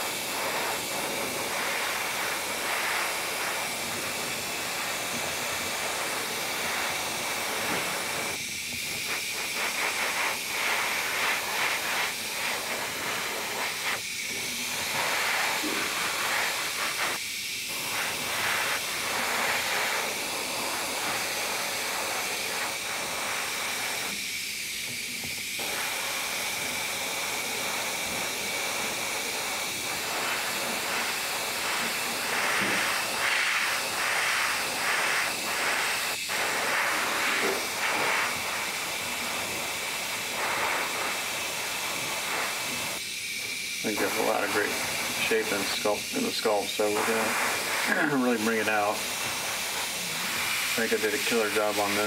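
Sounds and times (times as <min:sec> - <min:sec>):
airbrush spraying hiss: 0:00.0 - 0:52.0.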